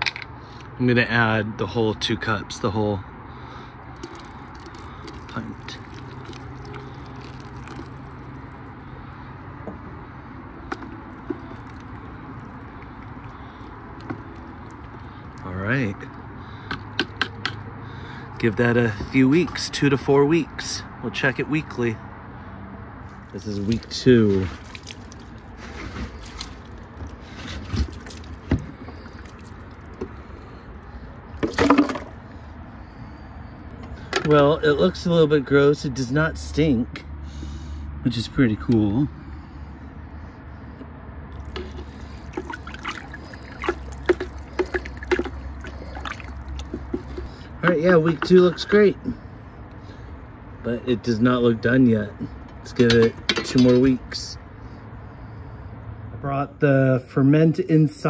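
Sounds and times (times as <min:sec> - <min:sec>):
rainwater splashing on lid: 0:03.9 - 0:08.9, 0:10.5 - 0:15.5, 0:24.5 - 0:29.6, 0:41.3 - 0:48.5
liquid pouring into a bucket: 0:03.9 - 0:16.6, 0:23.5 - 0:30.6, 0:41.3 - 0:50.3
stick stirring slurry: 0:03.9 - 0:17.5, 0:23.2 - 0:32.1, 0:41.3 - 0:53.2.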